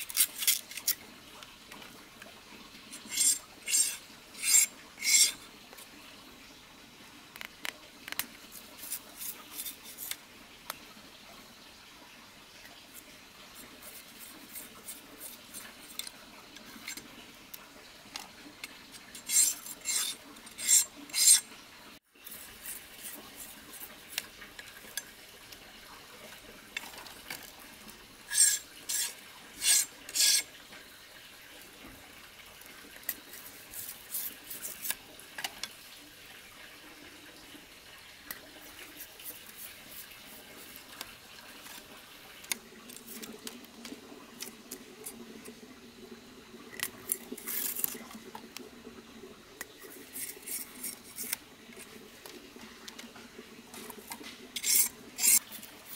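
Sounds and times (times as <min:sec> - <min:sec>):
bamboo strips clicking and rustling: 0:00.0 - 0:01.0
knife scraping bamboo strips: 0:00.0 - 0:01.0, 0:03.0 - 0:05.4, 0:08.5 - 0:10.2, 0:19.2 - 0:21.5, 0:28.3 - 0:30.5, 0:33.3 - 0:35.0, 0:46.8 - 0:48.0, 0:50.0 - 0:51.4, 0:54.6 - 0:55.9.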